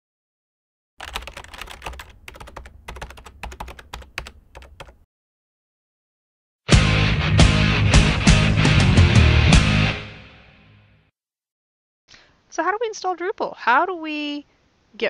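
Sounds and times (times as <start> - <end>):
rapid keyboard typing: 1.0 - 5.0.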